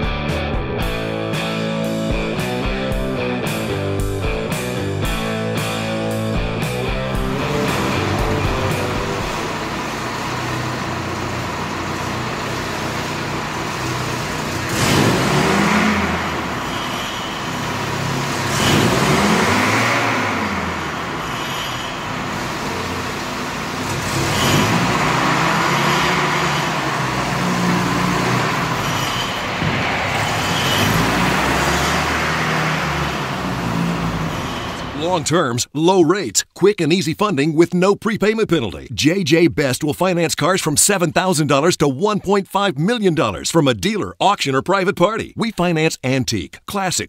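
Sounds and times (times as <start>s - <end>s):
car engine idling and revving: 0.0s - 35.1s.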